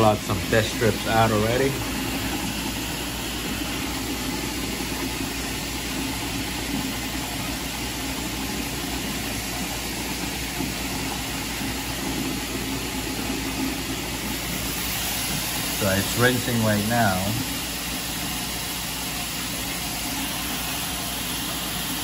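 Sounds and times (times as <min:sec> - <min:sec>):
water purification machine hum: 0:00.0 - 0:22.0.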